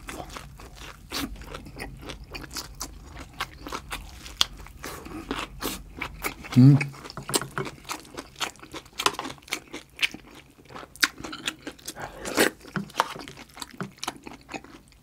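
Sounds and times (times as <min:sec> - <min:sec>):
person chewing food: 0:00.0 - 0:15.0.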